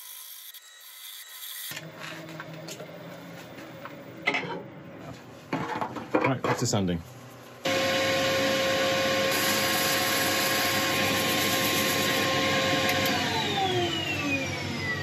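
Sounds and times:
lathe motor whine: 7.6 - 15.0.

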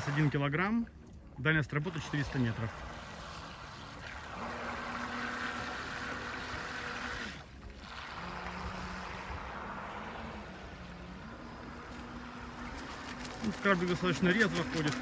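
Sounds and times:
boat motor humming: 0.0 - 15.0.

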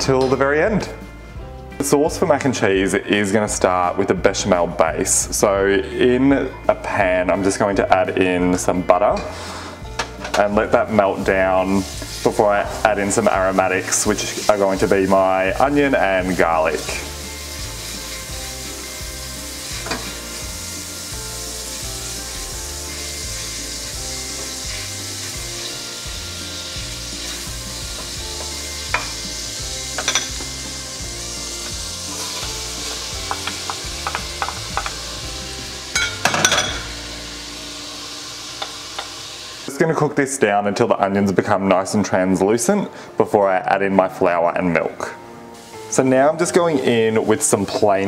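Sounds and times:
butter and onion sizzling in pan: 8.5 - 40.4, 45.5 - 48.0
spoon knocking against pot: 33.2 - 35.0.

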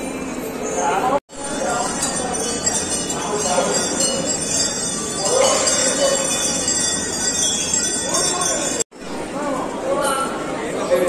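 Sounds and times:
crowd chatter: 0.0 - 11.0
metallic jingling: 1.3 - 8.9.

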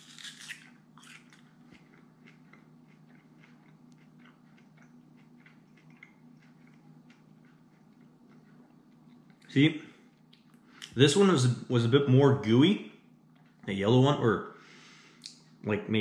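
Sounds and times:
quiet chewing: 0.0 - 11.0, 13.3 - 13.7
low steady hum: 0.0 - 16.0.

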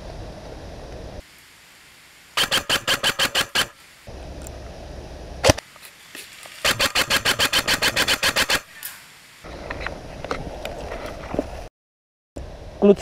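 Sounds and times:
airsoft rifle firing burst: 2.4 - 3.8, 6.6 - 8.7
rustle of movement: 3.6 - 7.1, 8.5 - 11.7.

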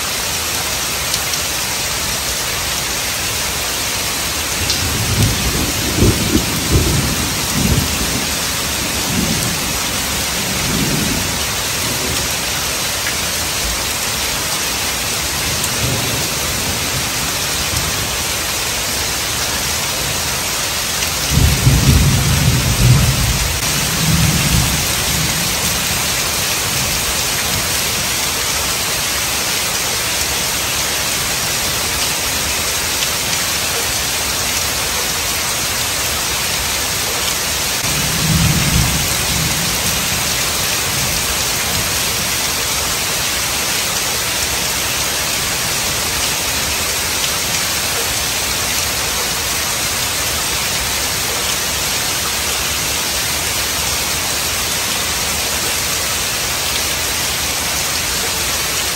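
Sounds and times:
heavy rain pouring: 0.0 - 58.9
thunder rumbling: 4.6 - 12.3, 21.3 - 27.7, 37.8 - 41.8.

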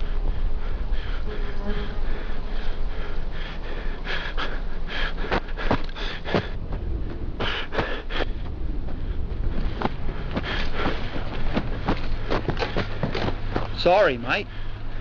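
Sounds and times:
man panting: 0.0 - 6.6, 7.4 - 13.7, 14.4 - 15.0
low steady rumble: 0.0 - 15.0
footsteps on stony ground: 4.4 - 14.2.

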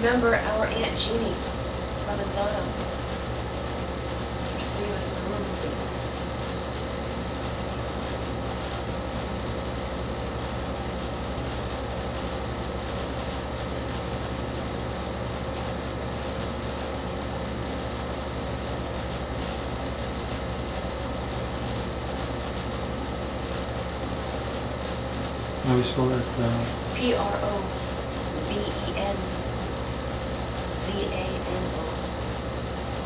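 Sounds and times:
low droning hum: 25.2 - 32.5.

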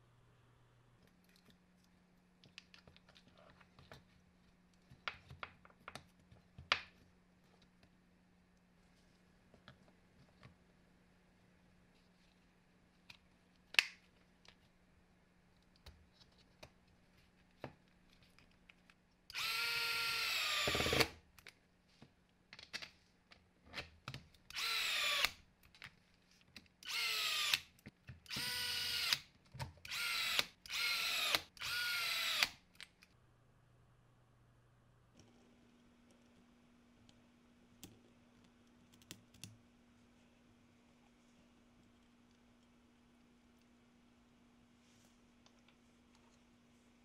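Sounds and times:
electric screwdriver driving screws: 19.3 - 21.2, 29.9 - 32.6.

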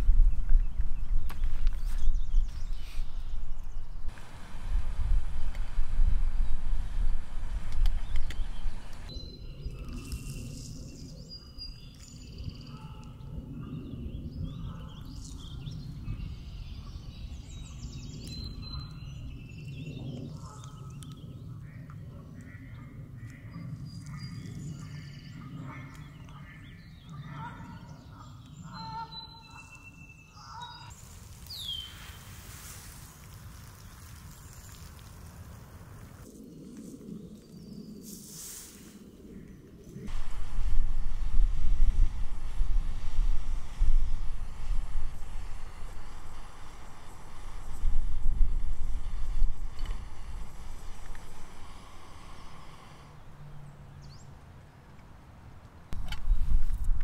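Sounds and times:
steady low rumble: 0.0 - 26.6, 39.1 - 54.2
wild birds calling: 8.0 - 30.9.

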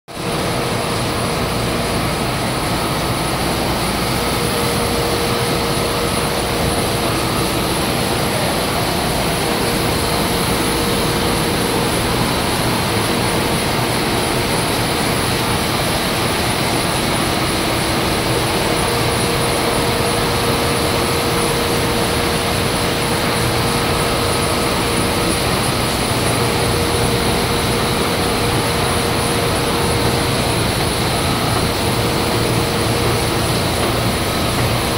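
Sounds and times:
printing press running: 0.1 - 34.9
mid-pitched hum: 15.9 - 34.9.

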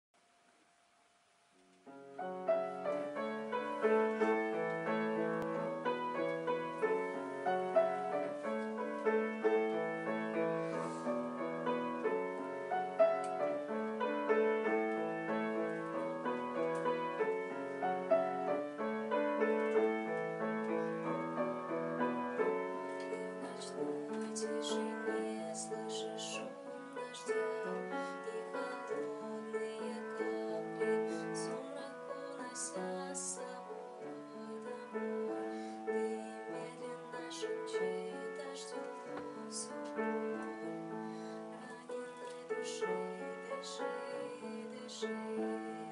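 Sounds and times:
grand piano playing: 1.8 - 45.9.

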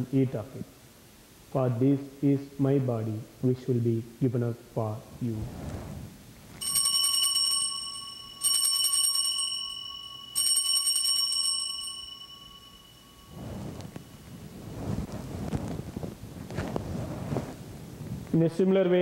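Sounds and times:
altar bells jingling: 6.6 - 14.5.

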